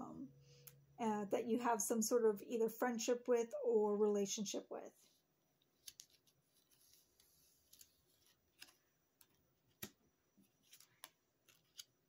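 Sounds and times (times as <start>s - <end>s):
playing card clicks and rustles: 5.6s - 12.0s.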